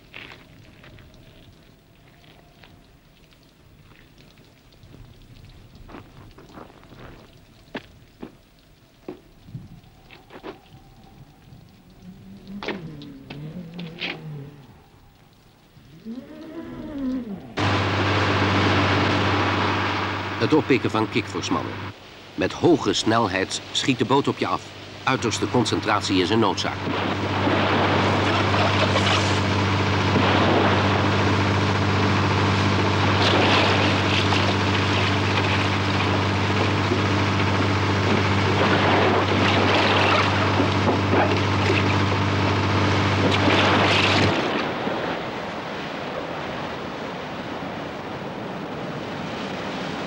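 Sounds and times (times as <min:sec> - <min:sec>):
water rushing along hull: 0:08.6 - 0:50.0
sea wash and wind: 0:09.5 - 0:50.0
boat engine droning: 0:09.8 - 0:22.0, 0:24.8 - 0:50.0.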